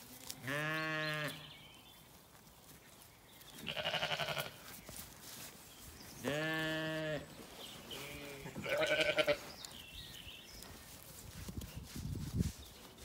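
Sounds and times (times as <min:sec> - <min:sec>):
sheep bleating: 0:03.6 - 0:04.6, 0:06.2 - 0:07.3, 0:07.9 - 0:09.5.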